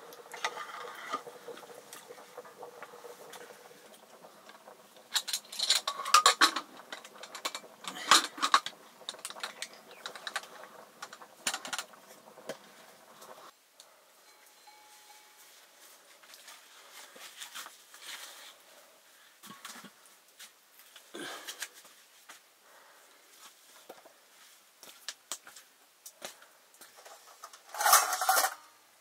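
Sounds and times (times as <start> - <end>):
metal cookware clinking: 0.3 - 12.0, 27.7 - 28.7.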